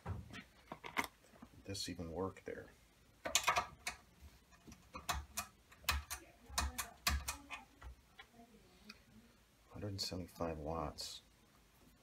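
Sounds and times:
small plastic parts clicking and rattling: 0.6 - 1.2, 3.2 - 8.3.

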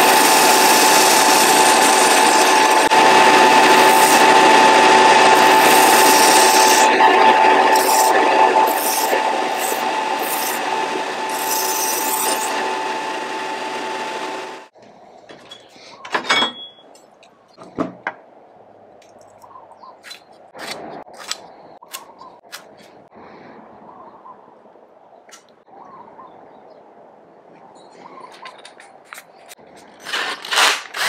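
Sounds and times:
belt sander whining: 0.0 - 14.7.

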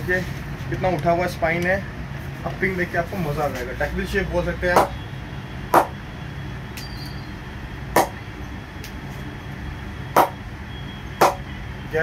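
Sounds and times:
cricket ball knocking on bat: 5.8 - 6.0.

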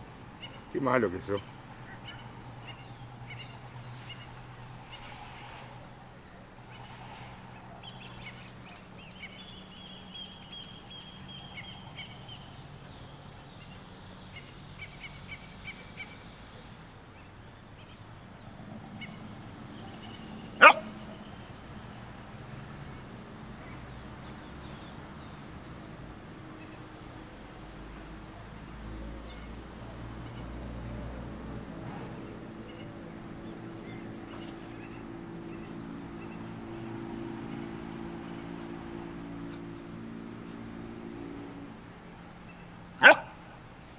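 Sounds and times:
young dog barking: 20.6 - 21.2, 43.0 - 43.4.

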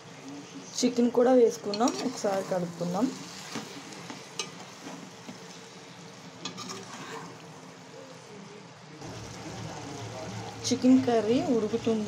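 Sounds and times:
food sizzling in hot oil: 0.8 - 8.0, 9.0 - 12.0
metal spoon clinking on pot: 4.4 - 4.6.

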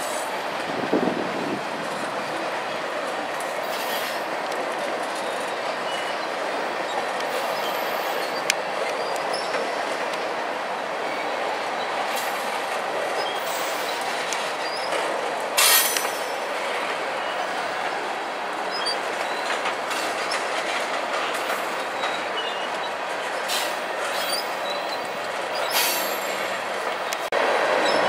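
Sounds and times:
freight train wheels rumbling: 0.0 - 28.0
high-pitched wheel squeal: 24.1 - 25.0.

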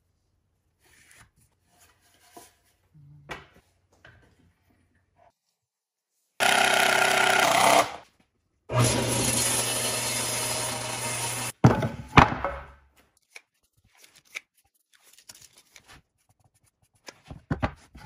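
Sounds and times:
table saw running: 6.4 - 8.0, 8.7 - 11.5.

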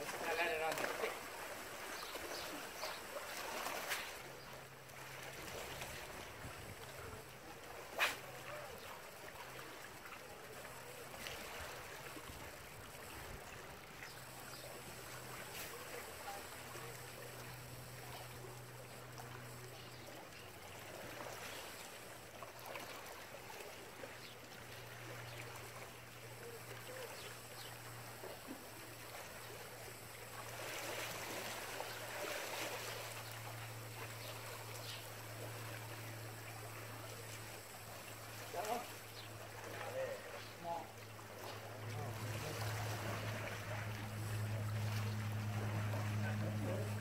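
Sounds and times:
water rushing along concrete: 0.0 - 47.0
low hum: 41.2 - 47.0.

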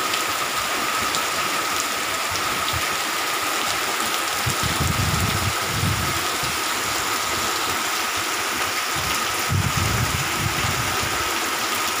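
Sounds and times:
heavy rain pouring: 0.0 - 12.0
wind rumbling on microphone: 2.3 - 3.0, 4.4 - 7.8, 8.5 - 11.4.

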